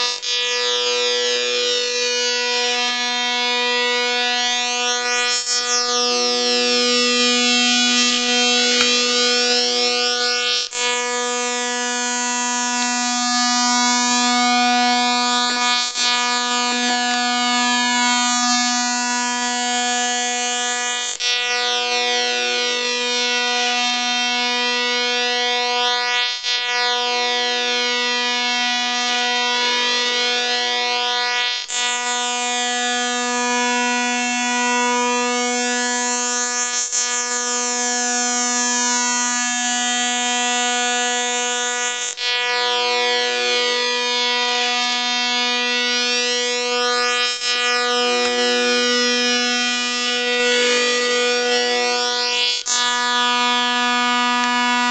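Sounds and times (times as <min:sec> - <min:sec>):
low electronic buzzing tone: 0:00.0 - 0:20.4, 0:31.8 - 0:54.9.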